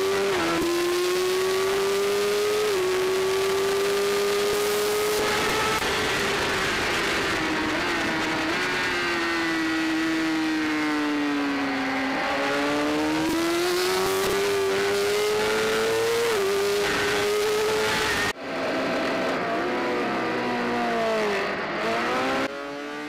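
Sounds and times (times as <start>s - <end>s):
motorcycle engine at race pace: 0.0s - 23.0s.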